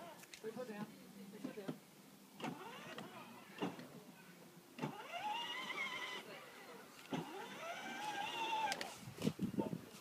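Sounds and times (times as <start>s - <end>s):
electric toy car motor whining: 2.4s - 3.8s, 4.8s - 6.3s, 7.1s - 8.9s.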